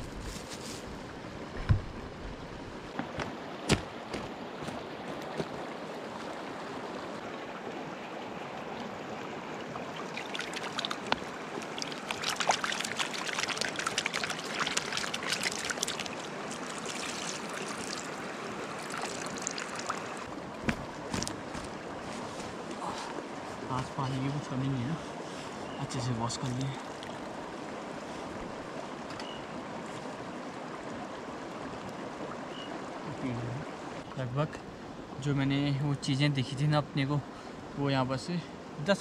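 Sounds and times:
river water rushing: 0:00.9 - 0:35.3
splashing and clatter in water: 0:10.1 - 0:18.2, 0:18.8 - 0:21.8.

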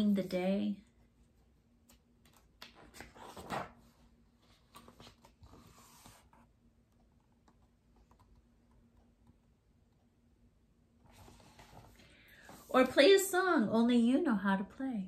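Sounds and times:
faint steady hum: 0:00.0 - 0:15.0
book pages turning and rustling: 0:01.8 - 0:06.5, 0:11.1 - 0:13.2.

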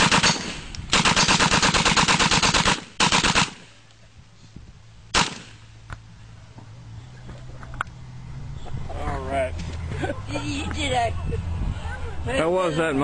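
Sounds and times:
submachine gun bursts: 0:00.0 - 0:03.6
single gunshot: 0:05.1 - 0:05.6.

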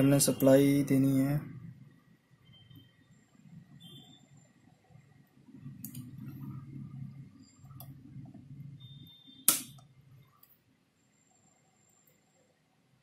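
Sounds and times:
sharp loud click: 0:09.5 - 0:09.8.

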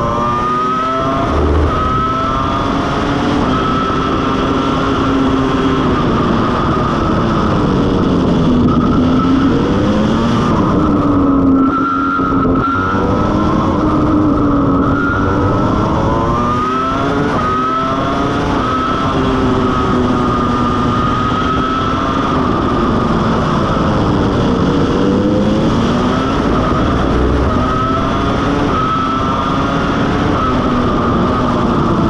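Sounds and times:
racing car engine revving: 0:00.0 - 0:32.0.

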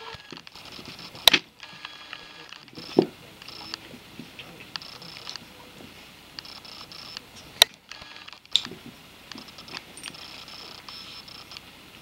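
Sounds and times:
collar tag jangling: 0:09.7 - 0:10.7.

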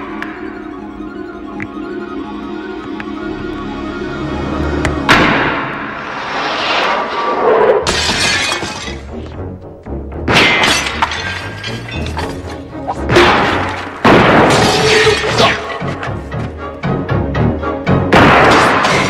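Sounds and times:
glass shattering: 0:07.8 - 0:09.2, 0:10.3 - 0:12.6, 0:14.4 - 0:15.8, 0:18.5 - 0:19.0
gunshots: 0:13.1 - 0:15.6.

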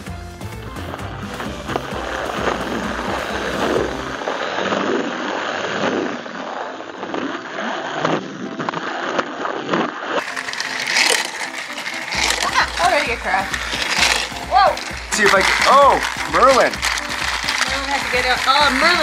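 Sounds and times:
wheels rattling and scraping: 0:00.0 - 0:09.3, 0:10.0 - 0:19.0
toy train motor whirring: 0:00.8 - 0:08.2, 0:10.1 - 0:19.0.

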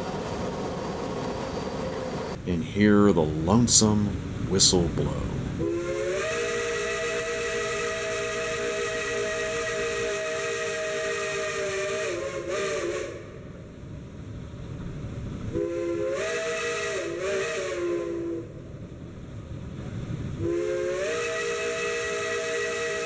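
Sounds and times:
steam hissing: 0:03.5 - 0:13.4, 0:15.5 - 0:18.5, 0:20.4 - 0:23.0
steam locomotive chime whistle: 0:05.6 - 0:13.3, 0:15.6 - 0:18.5, 0:20.4 - 0:23.0.

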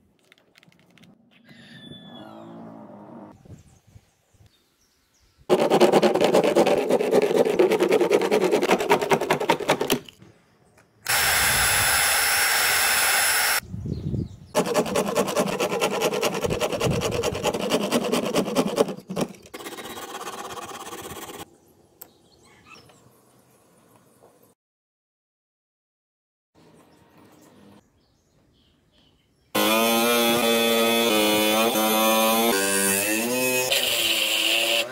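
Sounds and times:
coping saw cutting plastic: 0:05.5 - 0:10.0, 0:14.6 - 0:21.4, 0:29.6 - 0:34.9
power tool whining: 0:11.1 - 0:13.6, 0:29.6 - 0:34.9.

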